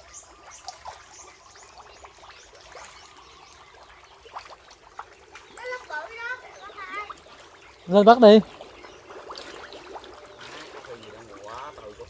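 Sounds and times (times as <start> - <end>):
shallow water splashing: 0.0 - 12.0
small fish flapping in water: 8.4 - 11.9.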